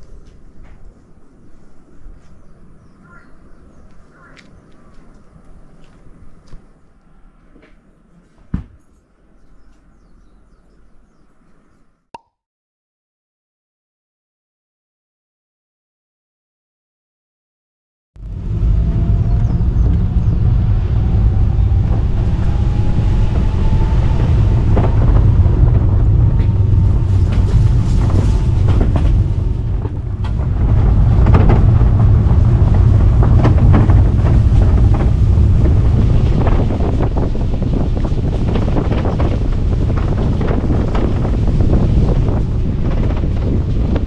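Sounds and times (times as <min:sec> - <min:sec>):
wind buffeting microphone: 0:09.1 - 0:11.5, 0:18.2 - 0:44.0.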